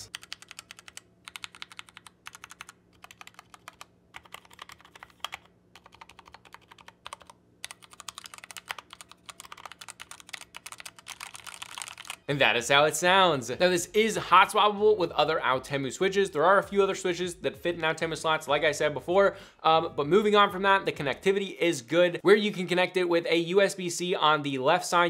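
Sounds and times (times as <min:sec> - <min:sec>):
mechanical keyboard typing: 0:00.0 - 0:12.3.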